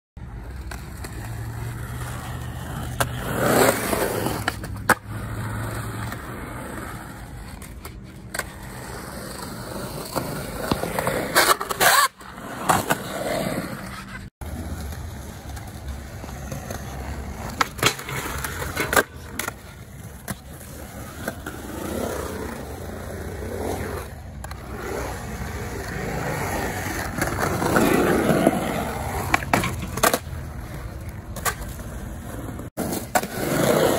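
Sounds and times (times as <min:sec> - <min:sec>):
skateboard wheels rolling on concrete: 0:00.2 - 0:33.9
skateboard clacking on concrete: 0:16.6 - 0:20.5.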